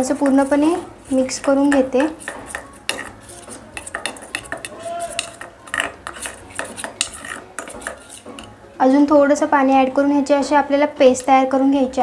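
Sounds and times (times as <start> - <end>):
spoon clinking against metal bowl: 0.0 - 8.6
spoon stirring thick paste: 0.0 - 8.7.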